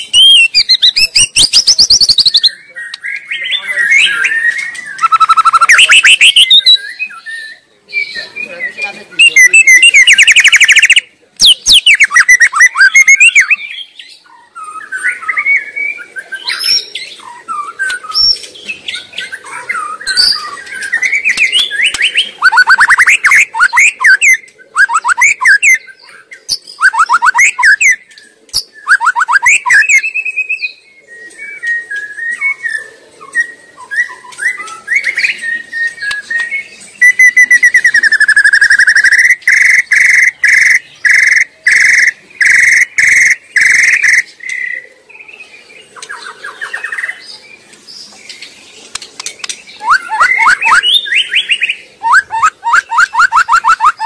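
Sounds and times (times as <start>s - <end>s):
bird singing whistles and trills: 0.0s - 47.6s, 49.4s - 54.0s.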